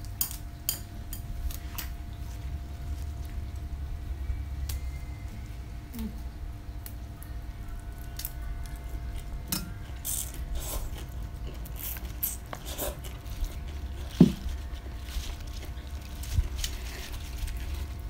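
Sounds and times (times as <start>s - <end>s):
steady low hum: 0.0s - 18.0s
crunching and chewing vegetables: 6.9s - 18.0s.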